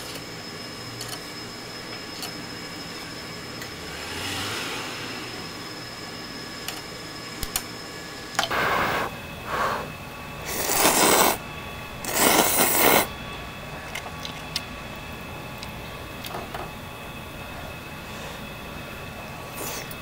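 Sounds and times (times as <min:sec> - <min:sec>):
person slurping noodles: 0:10.5 - 0:11.4, 0:12.1 - 0:13.1.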